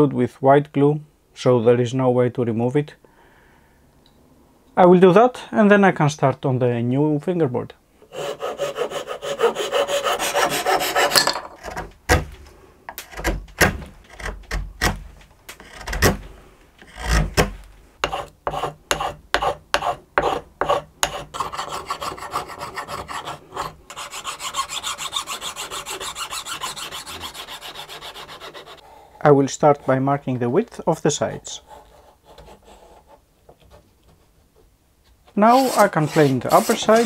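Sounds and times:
knife scraping wood: 14.0s - 28.8s, 35.5s - 37.0s.

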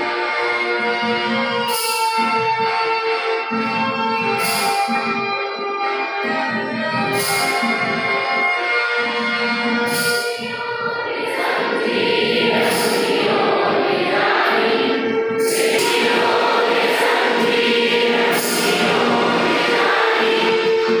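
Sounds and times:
held instrumental notes: 0.0s - 21.0s
choir singing: 10.4s - 21.0s.

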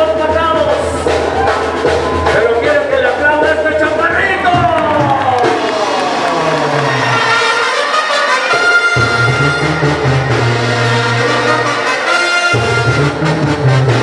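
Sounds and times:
trumpets and trombones playing: 5.4s - 14.0s
low brass bass line: 6.2s - 14.0s.

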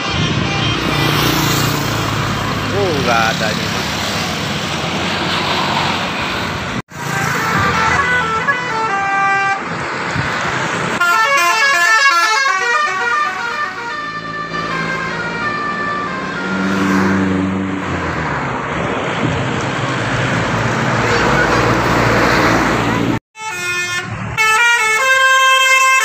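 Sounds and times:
bus horn playing melodies: 0.0s - 1.2s, 6.9s - 9.8s, 11.0s - 16.9s, 22.8s - 26.0s
bus engine: 0.0s - 26.0s
traffic noise: 0.0s - 26.0s.

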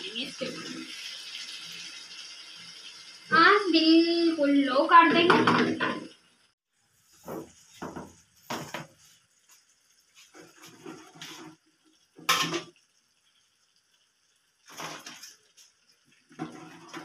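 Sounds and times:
spoon scraping pan: 7.1s - 11.6s.

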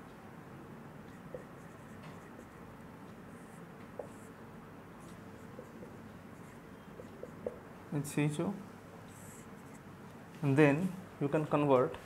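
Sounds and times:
marker squeaking on whiteboard: 1.1s - 4.4s, 5.0s - 7.6s, 9.1s - 9.9s
marker tip tapping board: 1.3s - 2.5s, 3.8s - 4.3s, 5.0s - 6.0s, 7.0s - 7.6s.

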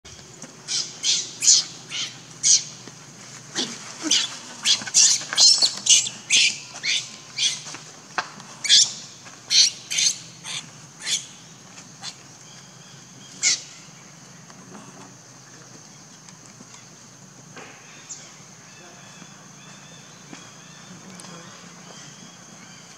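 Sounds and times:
baby monkey squealing: 0.7s - 2.6s, 4.0s - 7.6s, 8.6s - 11.3s.

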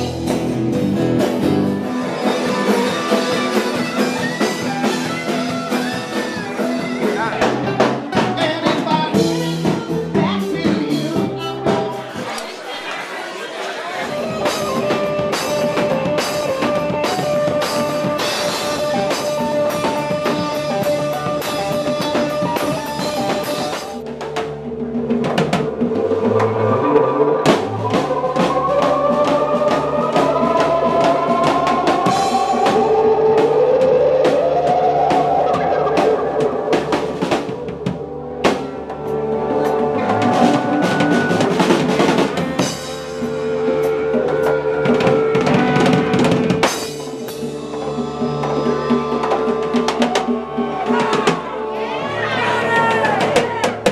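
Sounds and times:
drum kit beat: 0.0s - 12.6s, 14.0s - 53.9s
gliding melody line: 25.0s - 41.4s.

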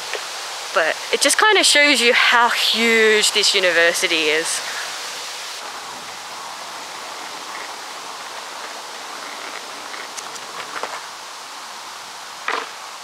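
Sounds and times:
skateboard wheels rolling on pavement: 5.6s - 13.0s.

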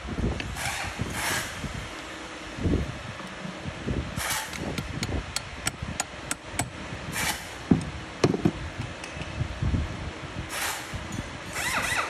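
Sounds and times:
dull metal knocks: 7.7s - 8.6s.

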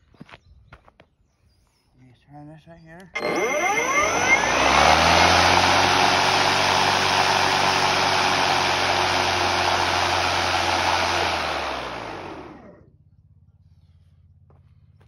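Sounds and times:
lawn mower motor whirring: 3.2s - 12.9s.

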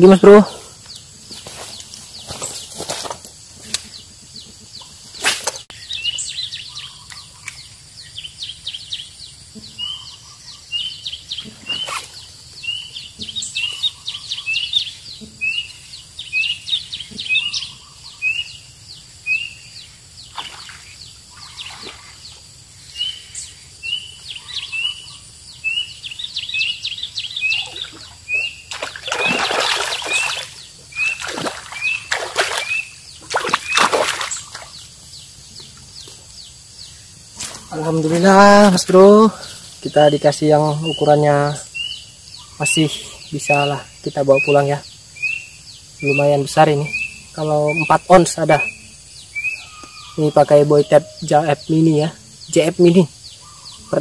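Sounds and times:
bird rising chirp: 5.7s - 54.0s
fish splashing at surface: 27.7s - 34.7s.

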